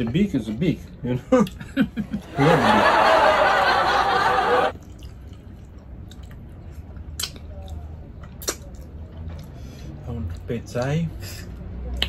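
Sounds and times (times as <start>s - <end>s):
chewing and mouth clicks: 4.7s - 9.6s, 10.2s - 10.5s
mouth smacks: 4.8s - 9.6s.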